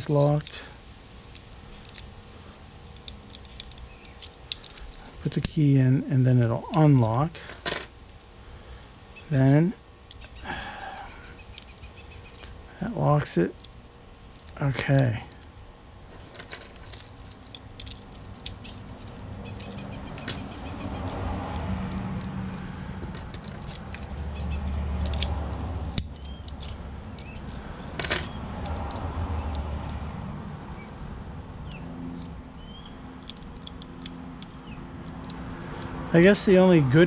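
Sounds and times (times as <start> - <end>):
lock and key clicking: 1.4 - 5.6, 16.1 - 24.2, 24.9 - 30.0, 33.2 - 35.9.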